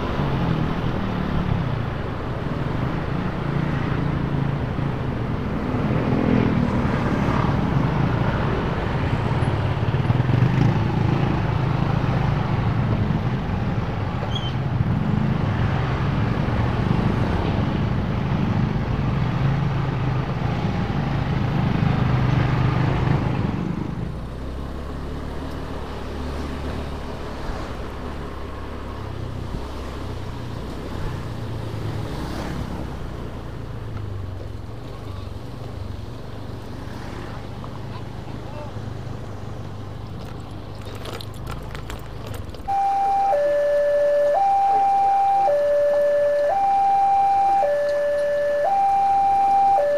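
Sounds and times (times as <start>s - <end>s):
road noise: 0.0s - 49.9s
scooter engine running: 39.6s - 49.9s.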